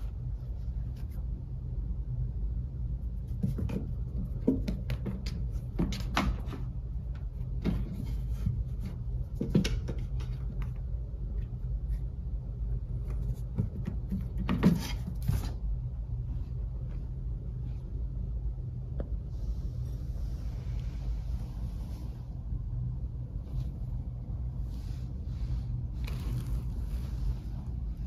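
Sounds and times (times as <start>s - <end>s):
low hum: 0.0s - 5.8s, 15.4s - 28.0s.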